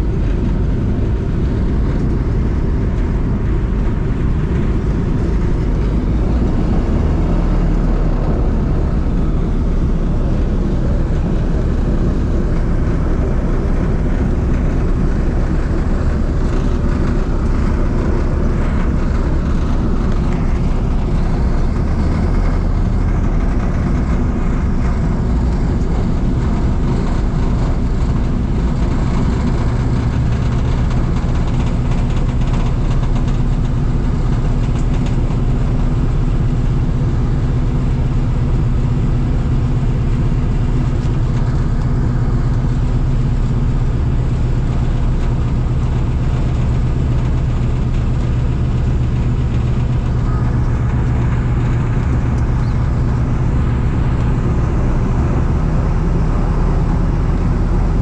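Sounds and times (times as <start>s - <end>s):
aircraft engines droning: 0.0s - 58.0s.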